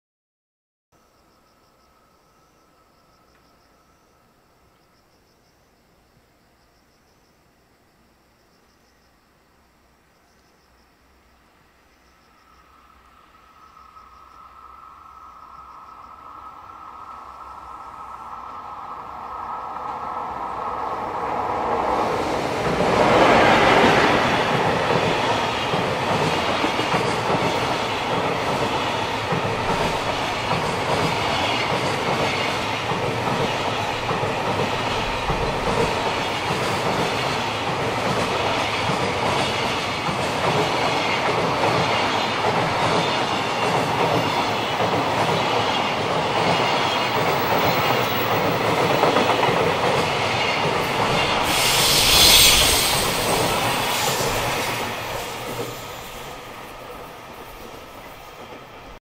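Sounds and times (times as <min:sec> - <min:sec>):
freight train wheels rumbling: 0:12.6 - 0:59.0
clickety-clack at rail joints: 0:19.8 - 0:59.0
brief rush of air: 0:50.8 - 0:56.7.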